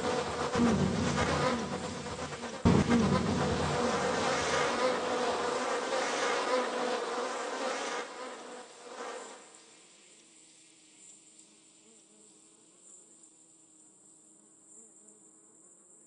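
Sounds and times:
steady hum: 0.0s - 5.8s
dense buzzing noise: 0.0s - 8.5s.

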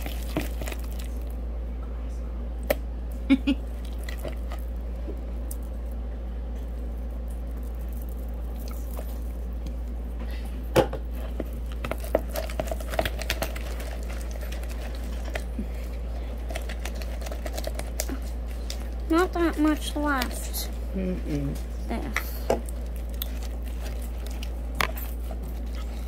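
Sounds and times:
stick stirring slime: 0.0s - 1.3s, 11.2s - 20.8s, 22.0s - 26.0s.

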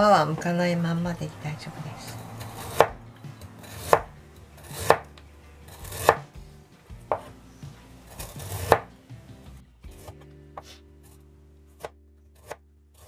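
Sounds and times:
knife slicing ginger: 2.1s - 6.3s, 8.1s - 8.9s, 11.7s - 13.0s.

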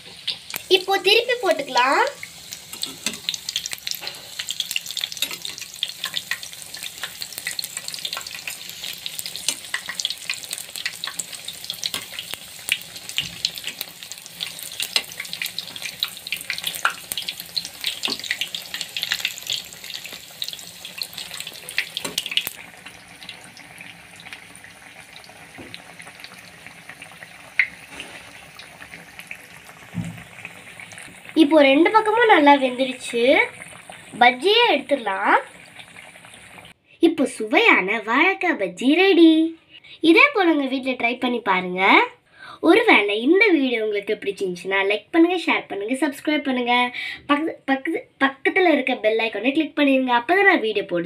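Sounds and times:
deep-frying sizzle with crackling pops: 0.0s - 36.8s.

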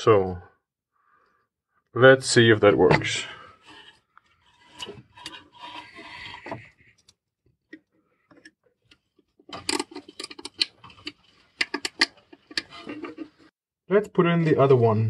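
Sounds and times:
plastic parts rubbing: 2.9s - 13.5s.

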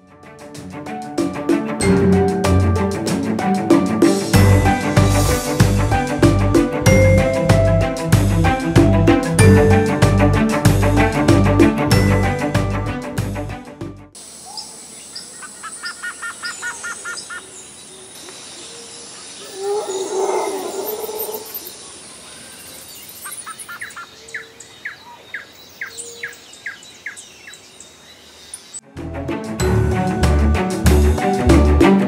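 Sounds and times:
background music: 0.0s - 14.2s, 28.8s - 32.0s
birds chirping: 14.2s - 28.8s
rough bird call: 18.3s - 27.2s.

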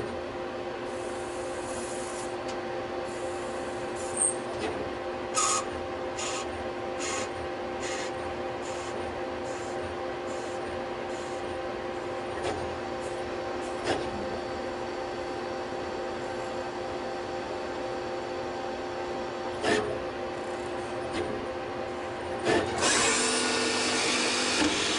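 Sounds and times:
lathe machine hum: 5.0s - 24.9s.

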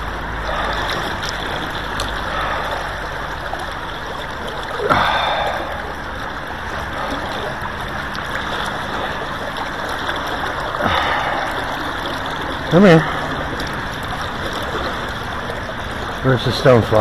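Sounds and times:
river current flowing: 0.0s - 17.0s
water splash: 0.0s - 17.0s.

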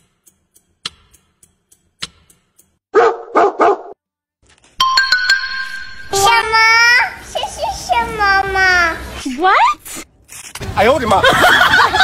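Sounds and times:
dog barking: 2.9s - 4.0s.

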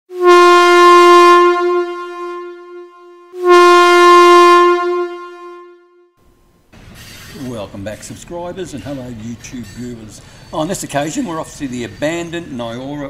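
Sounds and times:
train air horn blasts: 0.1s - 6.2s.

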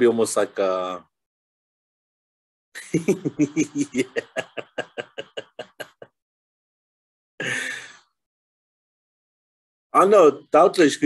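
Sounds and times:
person laughing: 2.8s - 6.1s.

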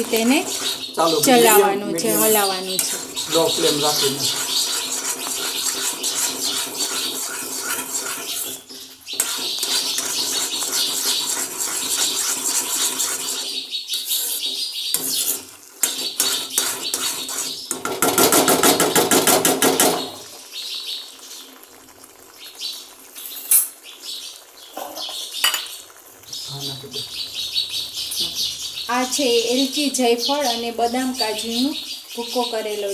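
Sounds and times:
spoon scraping metal pan: 0.0s - 19.9s.

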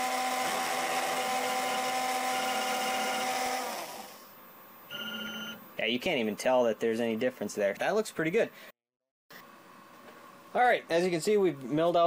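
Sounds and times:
spindle motor whining: 1.0s - 4.1s.

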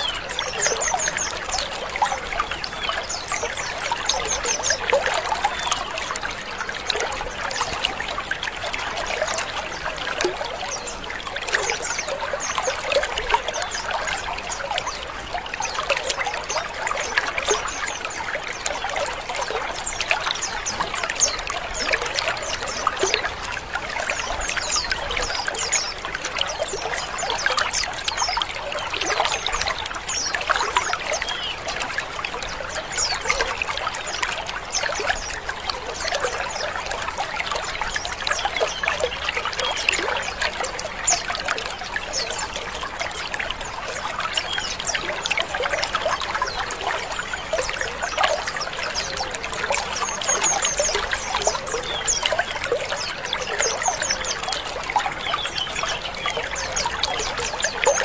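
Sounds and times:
many birds chirping and trilling: 0.0s - 58.0s.

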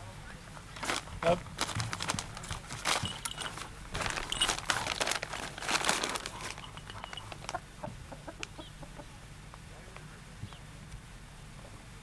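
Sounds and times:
plastic sheeting crinkling: 0.7s - 7.6s
light rustles: 0.8s - 7.6s
rooster clucking: 6.3s - 9.3s.

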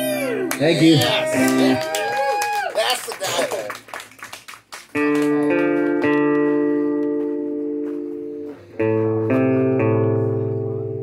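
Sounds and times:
acoustic guitar strummed chords: 5.0s - 11.0s.

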